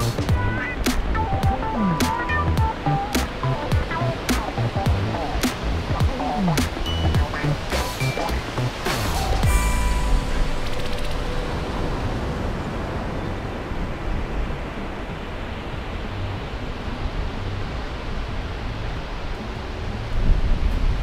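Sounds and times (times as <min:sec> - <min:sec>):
ocean surf breaking: 0:00.0 - 0:21.0
wind on microphone: 0:00.0 - 0:21.0.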